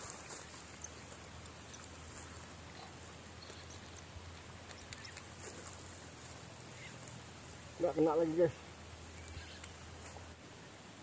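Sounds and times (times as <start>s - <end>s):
faint clicks: 3.4s - 5.8s, 9.2s - 10.2s.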